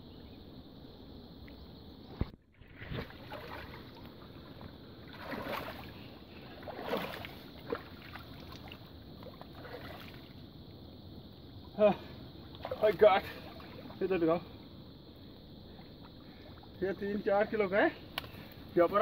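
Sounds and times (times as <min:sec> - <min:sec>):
water splashing around legs: 0:02.2 - 0:10.4, 0:12.4 - 0:14.2.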